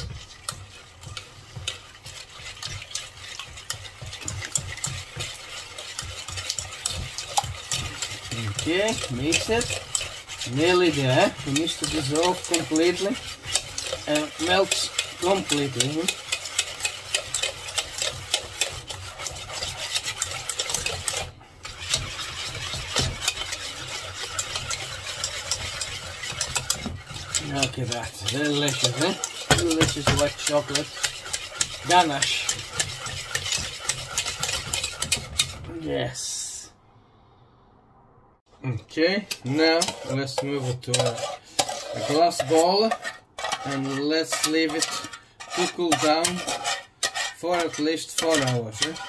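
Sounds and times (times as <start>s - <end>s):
utensil scraping and tapping bowl: 0.0s - 35.8s, 39.0s - 49.0s.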